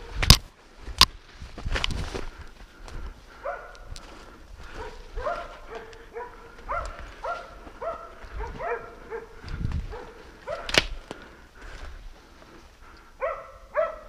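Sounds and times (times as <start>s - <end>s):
dog barking: 3.4s - 3.9s, 4.7s - 10.8s, 13.2s - 14.0s.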